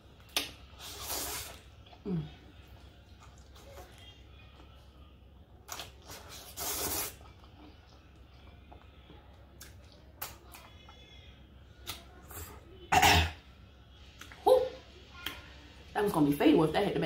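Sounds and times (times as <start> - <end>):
slurping noodles: 0.8 - 1.6, 6.0 - 7.3.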